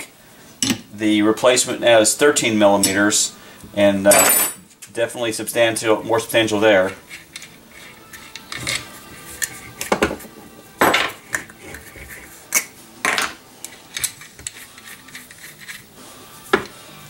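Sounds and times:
metal parts clinking on workbench: 4.1 - 4.6.

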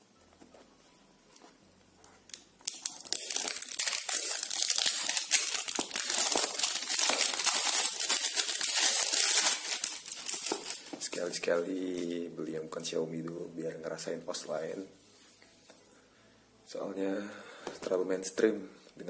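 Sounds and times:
plastic wrap crinkling: 2.1 - 12.1.

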